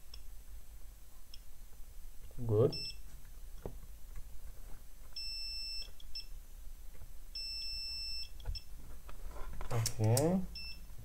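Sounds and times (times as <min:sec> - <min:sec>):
multimeter beeping: 0:05.2 - 0:06.3, 0:07.4 - 0:08.7.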